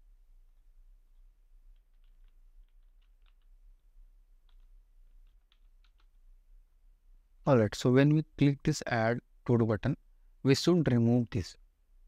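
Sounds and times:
typing on computer keyboard: 1.6s - 6.3s.

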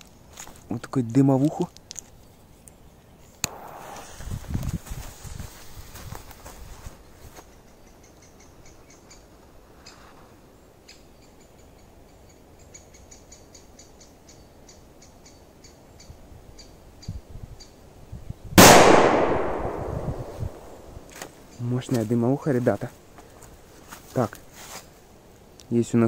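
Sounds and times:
firecracker bang: 3.5s - 4.3s, 18.6s - 21.0s.

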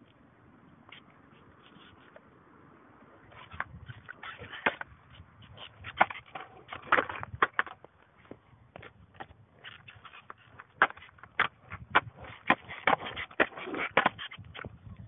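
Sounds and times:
skateboard clattering: 3.1s - 14.8s.

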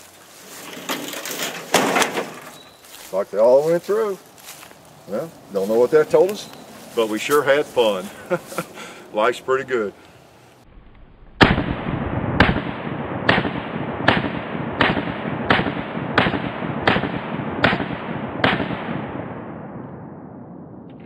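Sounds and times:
pistol shots with echo: 12.4s - 19.4s.

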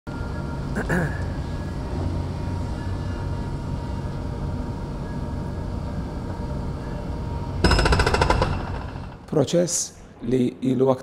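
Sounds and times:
heavy machinery rumble: 0.4s - 9.3s
fast rattling hammering: 7.6s - 9.3s.

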